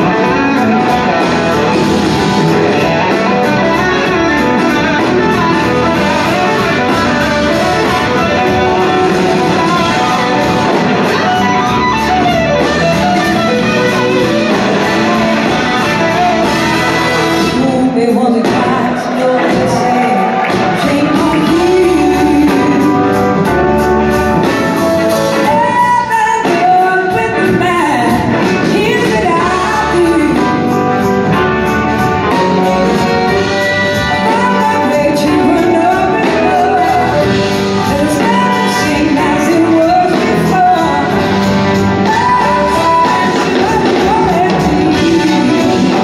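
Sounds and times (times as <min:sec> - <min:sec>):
horn section: 0:00.0 - 0:17.8
person singing: 0:00.0 - 0:23.8, 0:25.3 - 0:46.0
drum kits: 0:00.0 - 0:46.0
electric guitars: 0:00.0 - 0:46.0
keyboards: 0:00.0 - 0:46.0.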